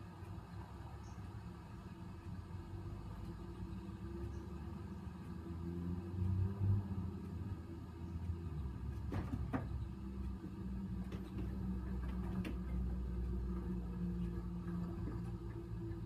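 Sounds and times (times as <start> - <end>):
steady low hum: 0.0 - 16.0
cat paws knocking on wood: 9.0 - 9.9, 11.0 - 13.0.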